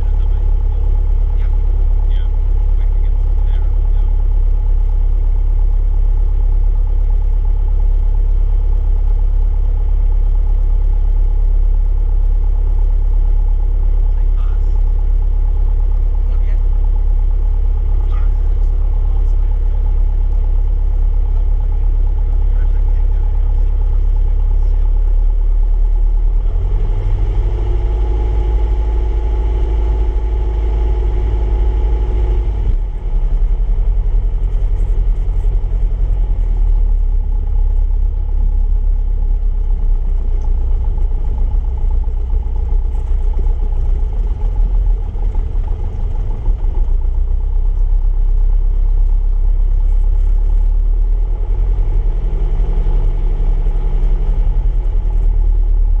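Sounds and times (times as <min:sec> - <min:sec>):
steady engine tone: 0:00.0 - 0:56.0
light aircraft engine and propeller: 0:26.2 - 0:56.0.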